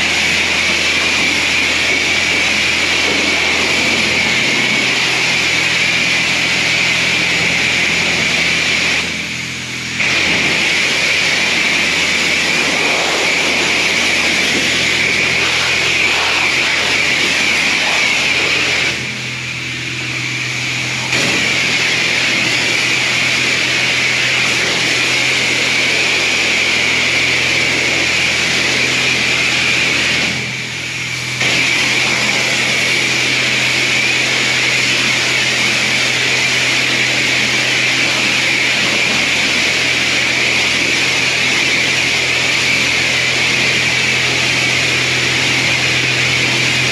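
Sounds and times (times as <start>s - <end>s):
high-pressure spray hissing: 0.0s - 30.4s
pump hum: 0.0s - 46.9s.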